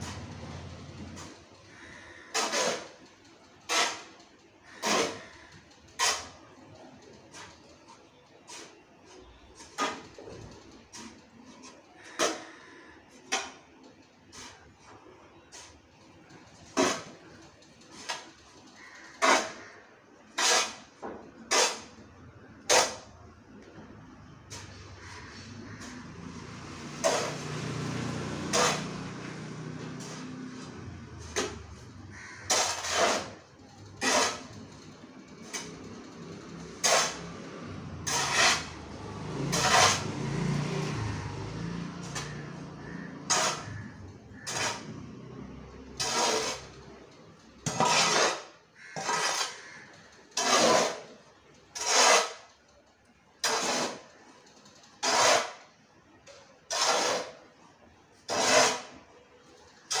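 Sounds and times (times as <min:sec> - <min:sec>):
metal blade scraping tiled floor: 0:00.0 - 0:03.0, 0:03.6 - 0:07.5, 0:16.7 - 0:23.2, 0:24.4 - 0:47.0, 0:47.6 - 0:52.7, 0:53.4 - 0:55.7, 0:56.3 - 0:57.6, 0:58.2 - 1:00.0.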